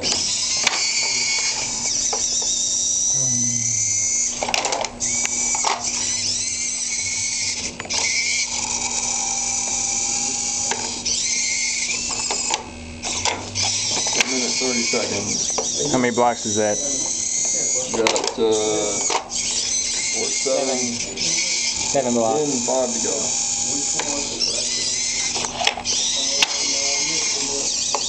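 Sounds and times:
servo motors whining: 0.0s - 28.0s.

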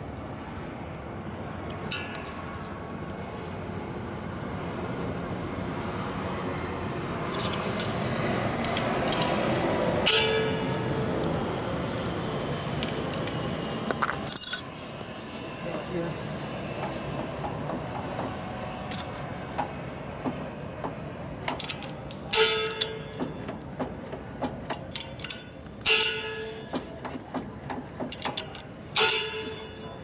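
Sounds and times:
steady mechanical noise: 0.0s - 30.0s
metallic clinks: 1.8s - 2.7s, 7.3s - 9.4s, 14.1s - 14.8s, 18.9s - 19.2s, 21.5s - 23.6s, 24.6s - 27.0s, 28.0s - 30.0s.

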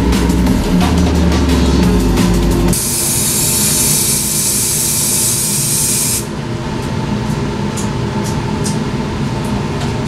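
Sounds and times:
aerosol spray can hissing: 2.8s - 6.2s.

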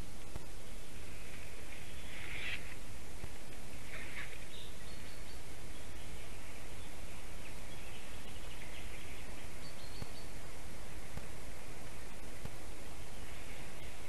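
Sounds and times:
high bird calls: 0.0s - 2.9s, 3.5s - 10.5s
outdoor background hiss: 0.0s - 14.0s.

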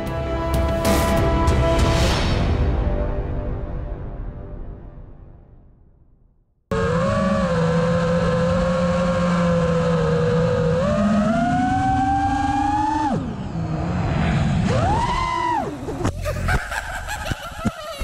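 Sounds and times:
drone motors whining: 6.7s - 18.0s.

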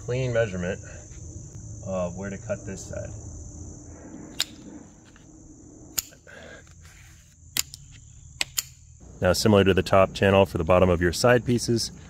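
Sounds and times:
high-pitched insect chorus: 0.0s - 12.0s
sharp clicks: 8.4s - 8.8s.

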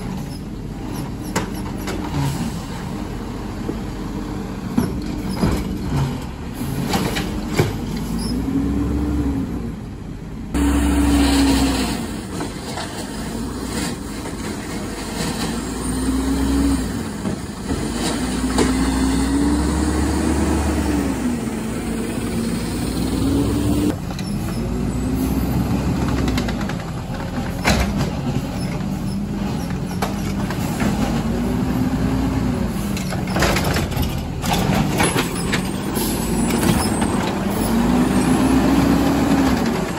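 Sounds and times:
diesel engine revving: 0.0s - 39.9s
knocks and clatter: 26.0s - 31.3s, 33.0s - 37.5s.

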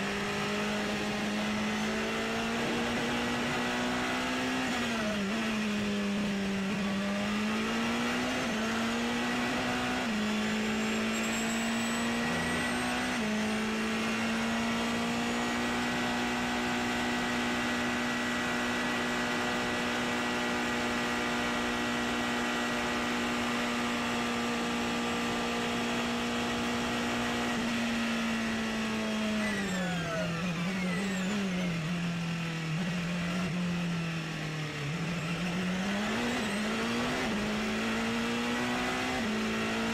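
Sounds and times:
racing car engine at speed: 0.0s - 39.9s.

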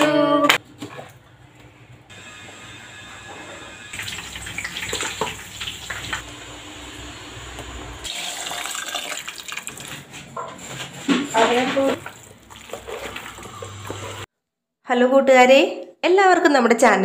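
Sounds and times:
liquid pouring into pots: 4.0s - 6.4s, 8.0s - 10.0s, 12.0s - 14.2s
stirring in a pot: 10.6s - 14.3s.

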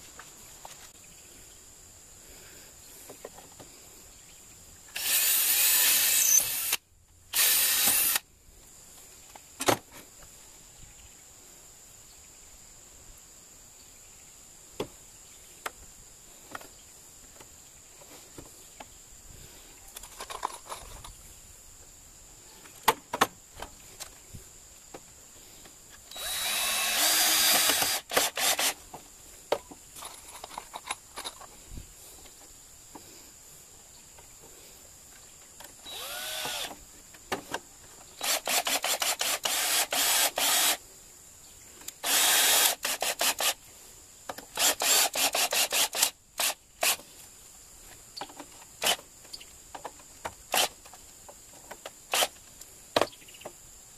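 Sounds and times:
cordless drill boring into wood: 4.9s - 8.2s, 26.1s - 28.8s, 35.8s - 36.8s, 38.2s - 40.8s, 42.0s - 43.6s, 44.6s - 47.0s, 50.5s - 50.7s, 52.1s - 52.3s.

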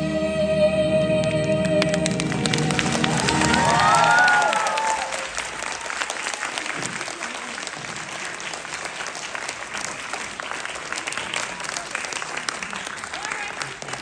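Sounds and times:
song's last note: 0.0s - 4.7s
audience applauding: 1.6s - 14.0s.

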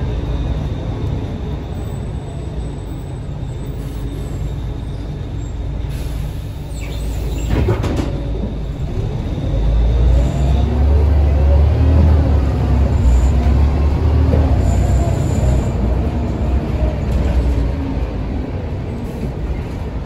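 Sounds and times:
bus engine: 0.0s - 20.0s
road noise: 0.0s - 20.0s
brief high squeal: 2.6s - 7.6s.

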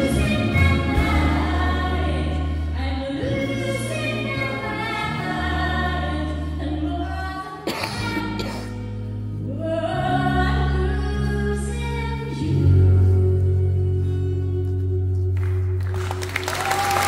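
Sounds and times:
held bass notes: 0.0s - 7.4s
woman singing: 0.0s - 8.6s, 9.4s - 15.4s
acoustic guitar: 0.0s - 16.2s.

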